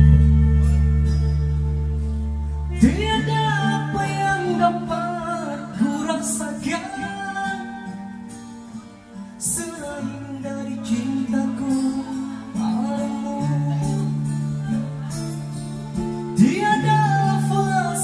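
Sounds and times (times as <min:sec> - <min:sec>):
amplified guitar music: 0:00.0 - 0:18.0
man singing into microphone: 0:02.7 - 0:08.2, 0:09.4 - 0:15.5, 0:16.2 - 0:18.0.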